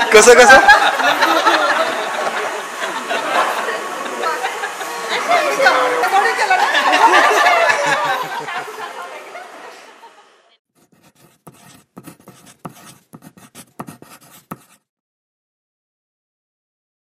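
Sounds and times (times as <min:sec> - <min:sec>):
people chattering and laughing: 0:00.0 - 0:10.6
pen scratching on paper: 0:10.8 - 0:14.9.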